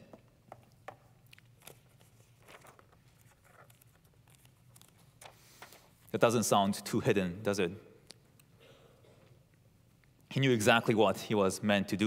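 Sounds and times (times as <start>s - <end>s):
paper rustling and clicking: 1.3s - 5.9s.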